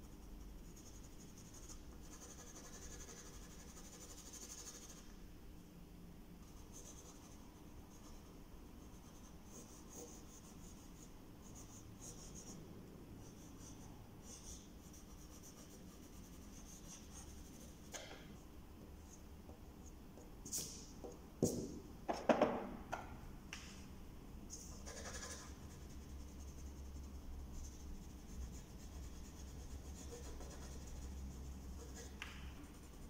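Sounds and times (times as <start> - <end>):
pencil scratching on paper: 0.1 - 5.0, 13.3 - 17.9, 24.8 - 33.0.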